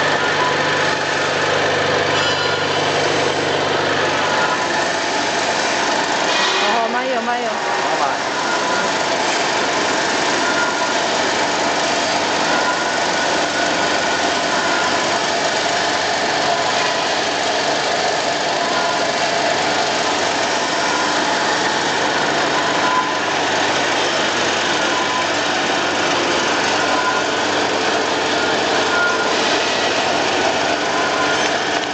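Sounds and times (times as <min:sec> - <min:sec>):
vibrating screen sieve running: 0:00.0 - 0:31.9.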